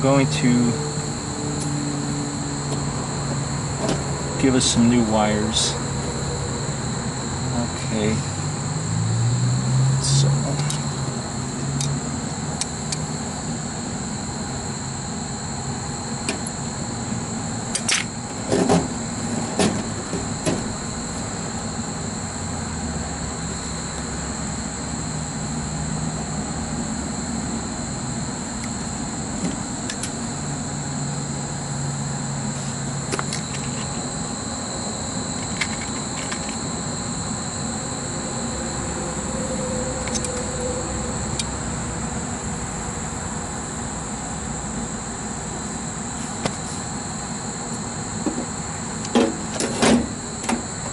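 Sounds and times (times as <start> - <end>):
insects trilling: 0.0 - 50.9
clicks and rattles of tools: 17.7 - 18.8, 35.4 - 36.6, 40.0 - 40.4.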